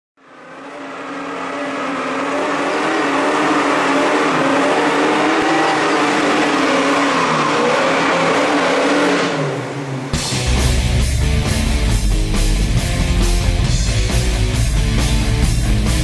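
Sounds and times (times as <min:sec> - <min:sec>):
car engine revving: 0:00.2 - 0:16.0
heavy rock music: 0:10.1 - 0:16.0.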